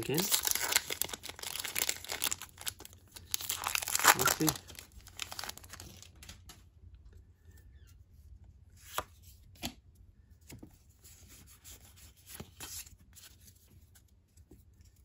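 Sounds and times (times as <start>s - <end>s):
trading cards rustling in hands: 0.0s - 6.7s.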